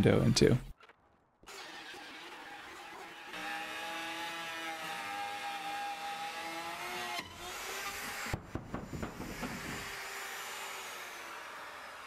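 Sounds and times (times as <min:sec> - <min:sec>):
router motor whine: 0:01.5 - 0:08.4, 0:09.3 - 0:12.0.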